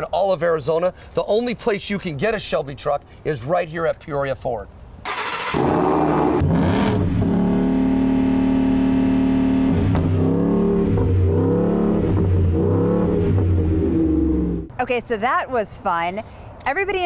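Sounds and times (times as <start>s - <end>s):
truck engine revving: 5.1s - 14.7s.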